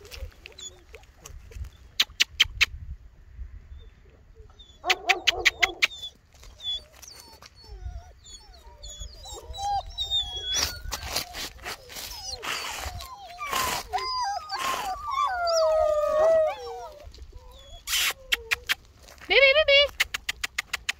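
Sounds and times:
dogs whimpering and whining: 0.0s - 1.8s, 3.8s - 19.1s
dogs barking: 4.8s - 6.0s.

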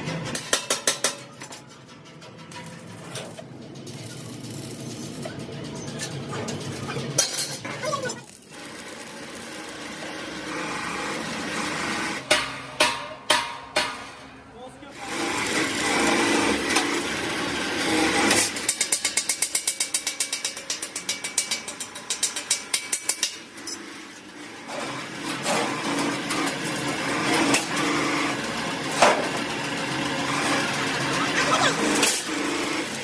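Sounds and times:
arc welding crackling: 2.5s - 12.3s
metal-on-metal strikes: 12.2s - 14.4s.

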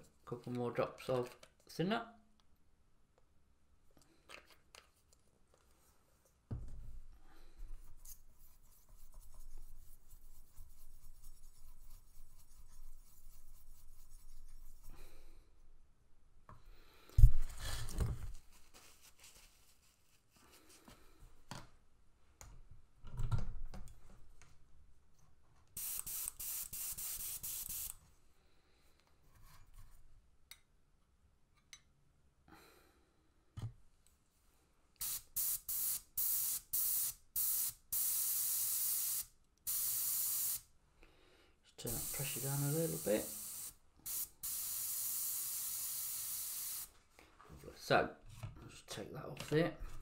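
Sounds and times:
airbrush spraying hiss: 25.8s - 28.0s, 35.0s - 40.7s, 41.8s - 46.9s.

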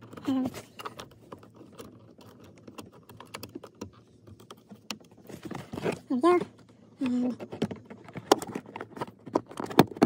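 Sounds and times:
small plastic clicks and taps: 0.0s - 5.2s
person's voice: 6.0s - 7.4s.

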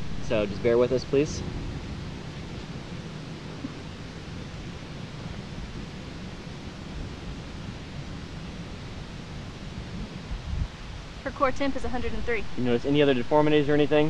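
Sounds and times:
wind noise on microphone: 0.0s - 14.0s.

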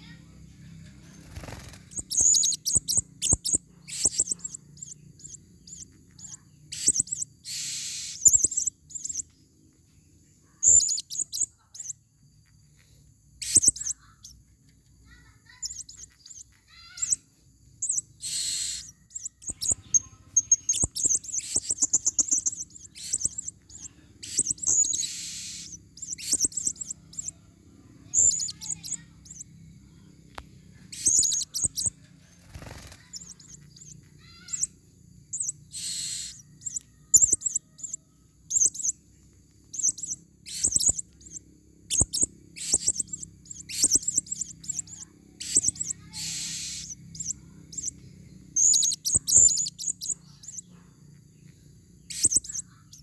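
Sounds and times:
parrots chirping shrilly: 1.0s - 9.2s, 10.6s - 11.9s, 13.4s - 14.3s, 15.1s - 17.2s, 17.8s - 27.4s, 28.0s - 29.4s, 30.9s - 39.0s, 39.7s - 47.9s, 48.6s - 50.7s, 52.0s - 53.0s
parrot screeches: 15.5s - 17.2s, 18.2s - 18.9s, 35.7s - 36.4s, 44.8s - 46.9s.

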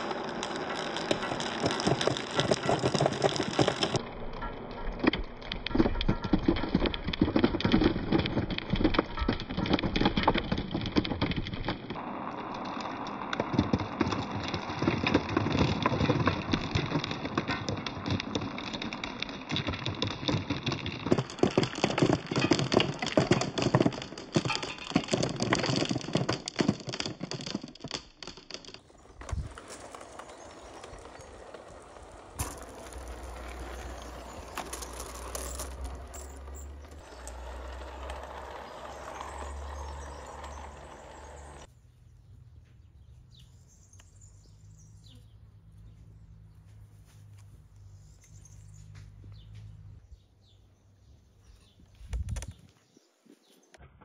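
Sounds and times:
marbles clattering down plastic track: 0.0s - 4.6s, 5.3s - 41.7s
toy train rolling on track: 0.0s - 10.9s, 11.9s - 41.7s.

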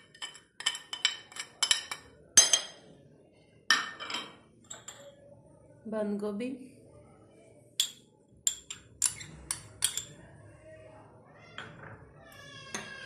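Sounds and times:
spoon knocking glass bowl: 7.8s - 10.1s.

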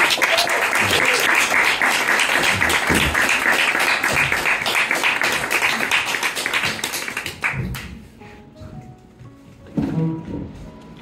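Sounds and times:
crowd applauding: 0.0s - 7.9s.

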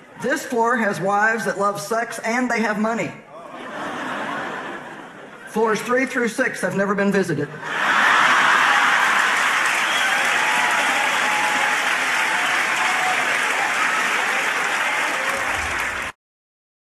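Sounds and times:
large audience applauding: 7.8s - 16.2s.

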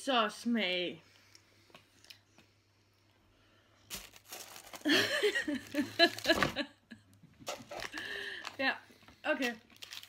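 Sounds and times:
candy wrapper crinkling: 3.9s - 6.6s, 7.4s - 8.7s, 9.4s - 10.0s.

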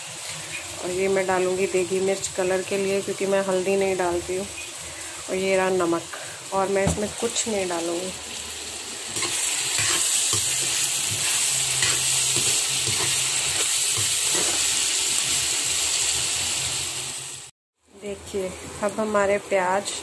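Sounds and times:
onions sizzling in oil: 0.0s - 20.0s
metal spatula scraping pan: 9.2s - 14.7s.

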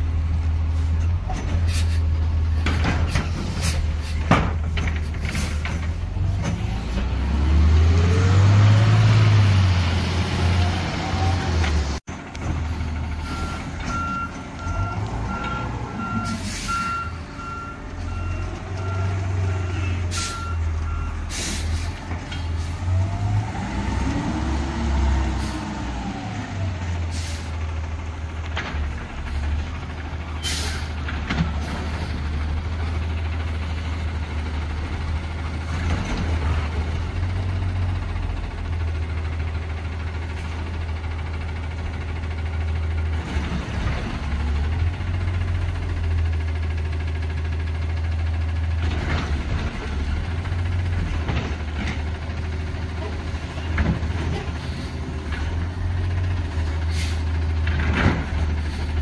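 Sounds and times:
garbage truck diesel engine: 0.0s - 59.0s
reversing beeps: 13.2s - 21.2s
air-brake hisses: 21.3s - 22.0s, 56.9s - 57.3s.

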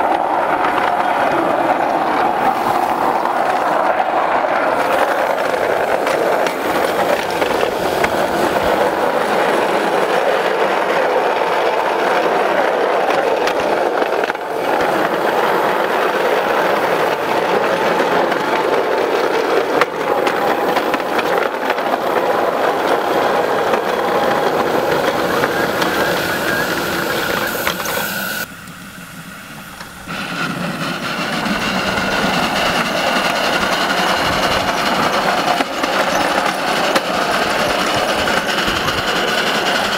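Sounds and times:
wheels clattering on rails: 0.0s - 28.8s, 29.5s - 39.9s.

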